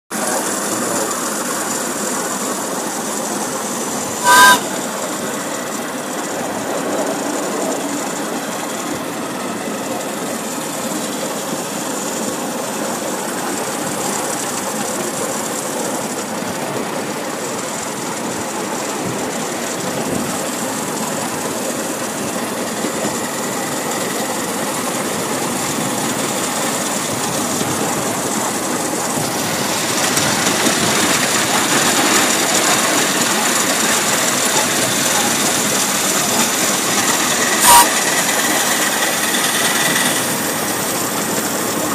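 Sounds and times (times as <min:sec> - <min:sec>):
miniature steam locomotive running: 0:00.1 - 0:41.9
brief sharp sound: 0:04.2 - 0:04.6, 0:37.6 - 0:38.0.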